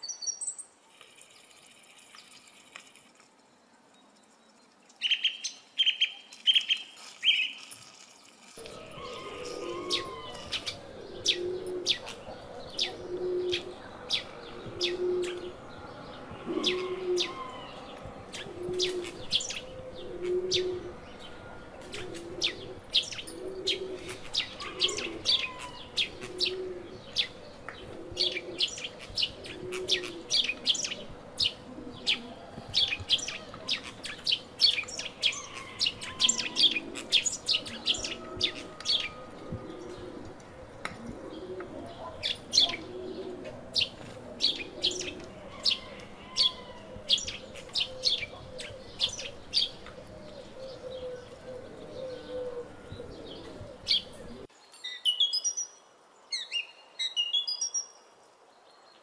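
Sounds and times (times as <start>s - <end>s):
birds chirping: 0.0s - 58.0s
dove cooing: 8.6s - 54.5s.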